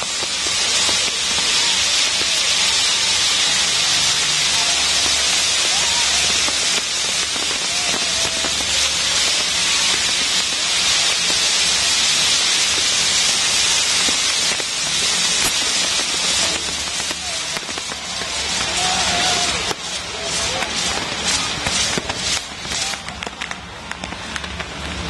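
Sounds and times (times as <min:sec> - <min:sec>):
fireworks hissing: 0:00.0 - 0:25.0.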